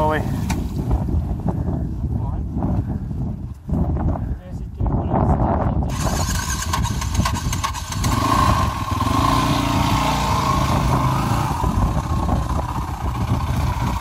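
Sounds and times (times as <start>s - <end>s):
dirt bike engine revving: 5.9s - 14.0s.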